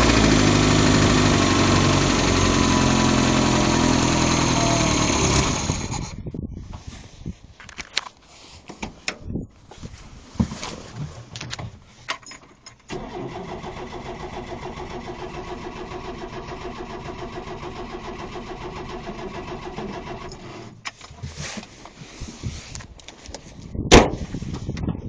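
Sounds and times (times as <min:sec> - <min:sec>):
car engine starting and idling: 0:00.0 - 0:06.2, 0:12.9 - 0:20.8.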